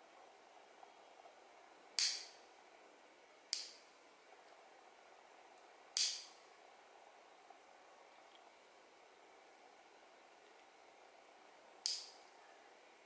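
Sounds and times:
nail clipper clipping: 0:02.0 - 0:02.4, 0:06.0 - 0:06.3, 0:11.8 - 0:12.2.

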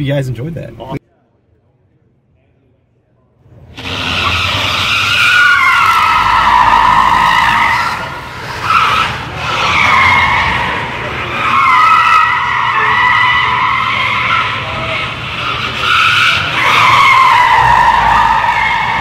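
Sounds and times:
tyres squealing on concrete: 0:03.7 - 0:19.0.

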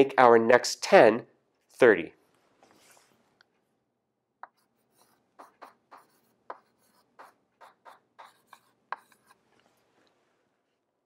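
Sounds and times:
chalk scratching on chalkboard: 0:04.4 - 0:09.4.

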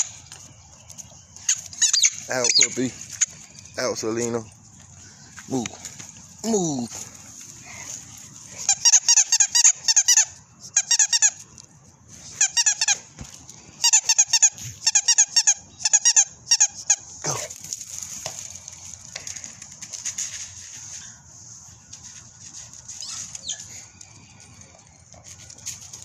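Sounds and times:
squeaky toy squeaking: 0:01.5 - 0:02.8, 0:08.7 - 0:11.4, 0:12.4 - 0:13.0, 0:13.8 - 0:17.1.

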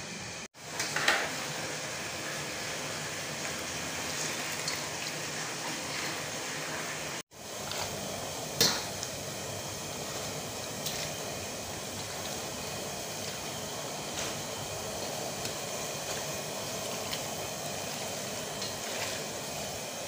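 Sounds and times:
cooking hiss at stove: 0:00.0 - 0:20.0.

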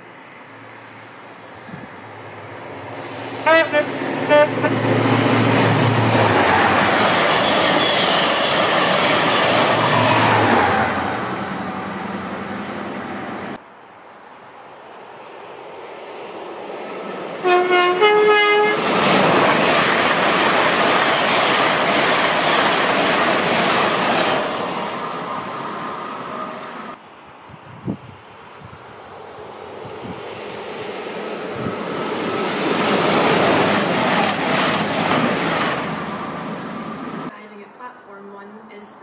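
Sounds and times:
train passing at speed: 0:00.0 - 0:37.6
two-note train horn: 0:03.4 - 0:04.8, 0:17.4 - 0:18.8.

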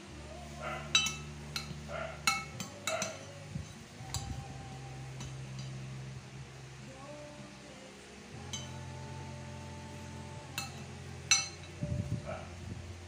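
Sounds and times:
metal spoon clinking on ceramic dish: 0:00.9 - 0:03.4, 0:08.5 - 0:08.7, 0:10.6 - 0:11.8.

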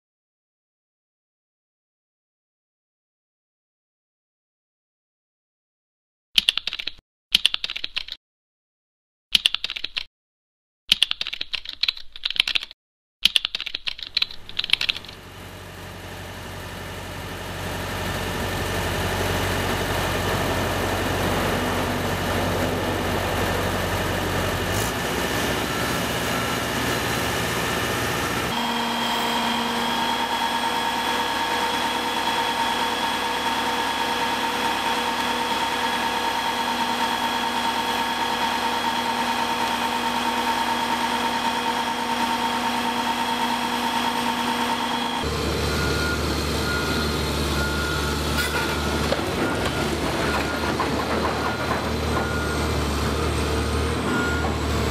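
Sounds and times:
keyboard typing clicks: 0:06.4 - 0:08.2, 0:09.4 - 0:10.1, 0:10.9 - 0:15.2
machinery engine running: 0:14.3 - 0:54.9.

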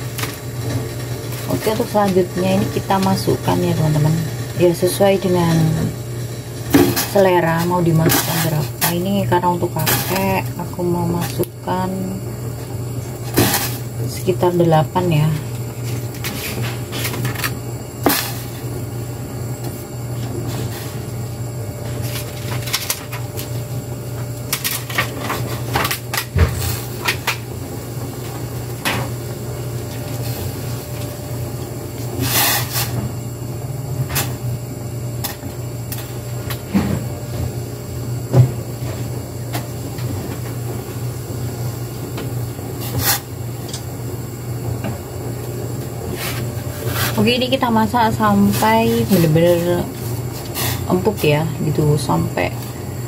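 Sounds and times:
steady low hum: 0:00.0 - 0:53.0
water boiling in a pot: 0:00.0 - 0:53.0.

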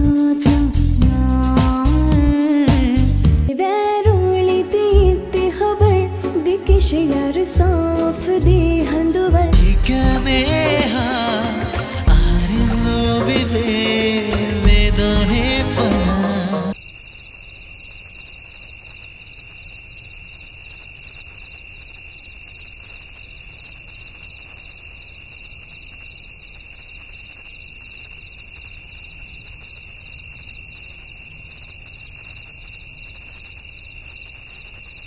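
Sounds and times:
electronic hiss with high whine: 0:09.8 - 0:35.0.

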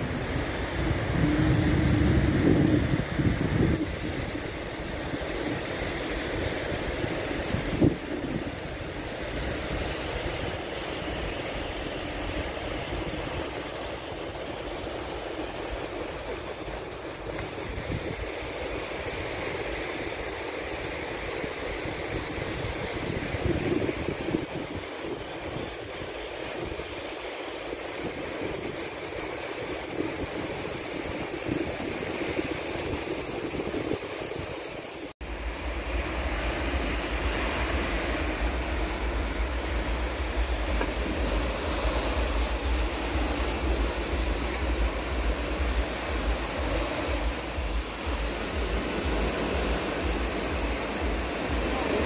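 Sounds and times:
sea surf breaking on beach: 0:00.0 - 0:52.0
low rumble: 0:35.2 - 0:52.0.

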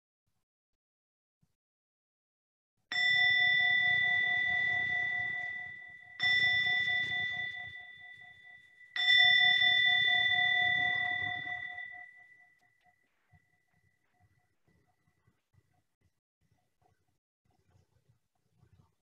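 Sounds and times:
meditation bell ringing: 0:02.9 - 0:14.3.

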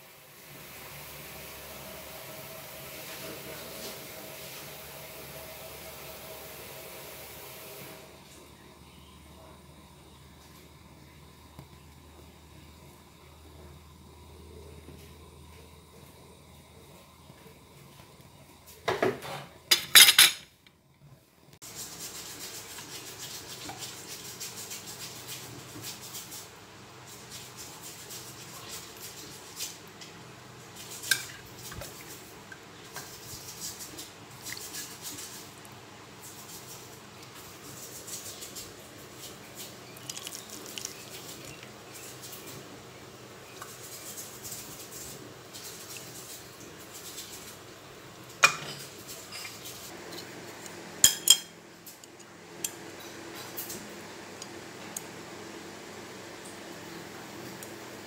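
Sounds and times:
utensils and bowls clinking: 0:19.7 - 0:20.5, 0:48.4 - 0:53.8.

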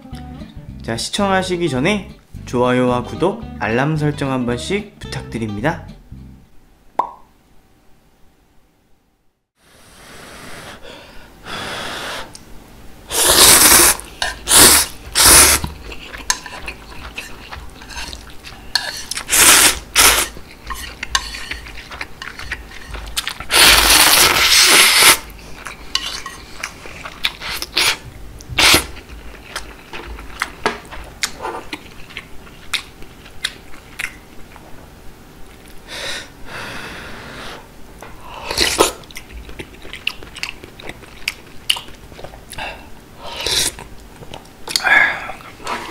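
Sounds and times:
slurping noodles: 0:13.1 - 0:15.8, 0:16.5 - 0:22.0, 0:23.2 - 0:25.3
soft chewing: 0:14.0 - 0:19.3, 0:20.0 - 0:23.5, 0:25.3 - 0:34.8, 0:35.4 - 0:35.8, 0:38.0 - 0:45.9.

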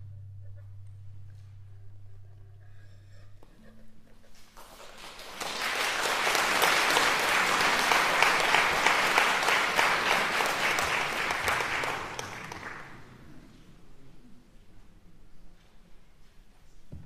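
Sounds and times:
audience applauding: 0:04.5 - 0:13.4.

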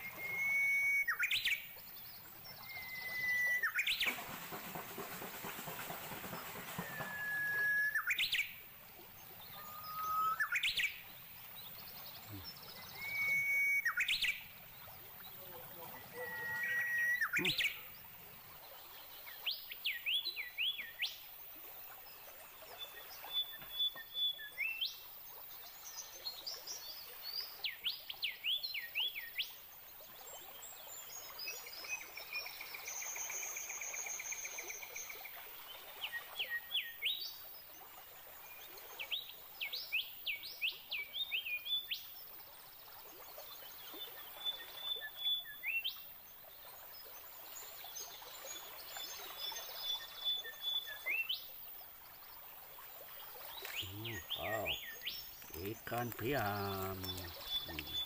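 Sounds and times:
songbirds whistling: 0:00.0 - 0:01.8, 0:02.4 - 0:04.2, 0:06.7 - 0:08.6, 0:09.2 - 0:18.0, 0:53.4 - 0:58.0.

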